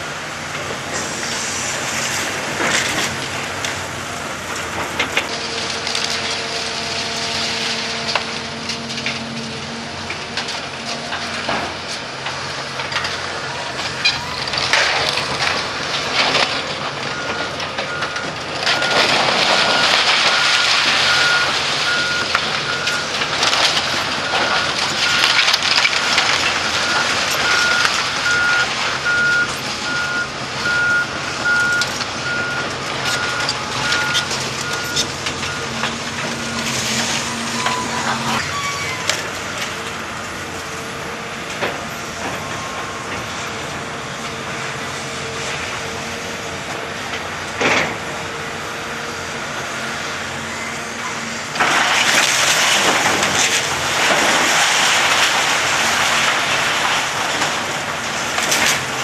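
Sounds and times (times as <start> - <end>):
diesel engines running: 0.0 - 59.0
metal crunching and scraping: 0.0 - 59.0
falling debris: 0.5 - 48.6, 49.4 - 59.0
reversing alarm beeping: 17.0 - 23.2, 24.2 - 35.9.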